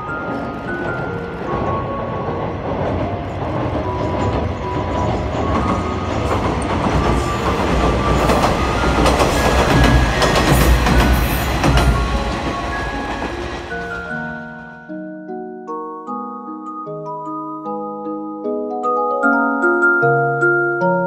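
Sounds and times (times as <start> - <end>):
wheels clacking over rail joints: 0.0 - 14.4
train rumbling over bridge: 0.0 - 14.8.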